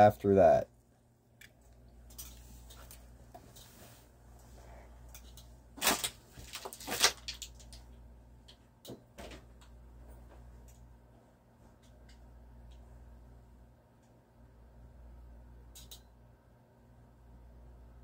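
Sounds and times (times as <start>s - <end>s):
faint steady hum: 0.0s - 18.0s
small clicks: 15.7s - 16.1s.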